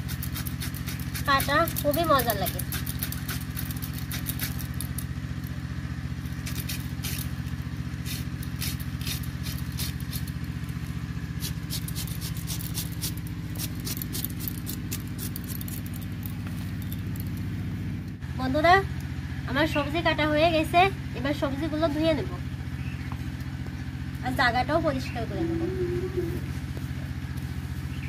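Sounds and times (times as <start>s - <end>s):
low motor hum: 0.0s - 28.0s
knife slicing cabbage: 6.4s - 7.3s, 8.0s - 10.4s.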